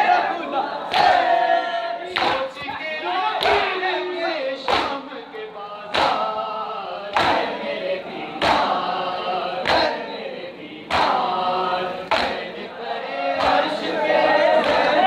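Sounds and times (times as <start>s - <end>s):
men chanting a lament: 0.0s - 15.0s
chest-beating slaps: 2.2s - 2.8s, 4.7s - 5.0s, 5.9s - 6.2s, 7.1s - 7.5s, 8.4s - 8.8s, 10.9s - 11.2s, 12.1s - 12.5s.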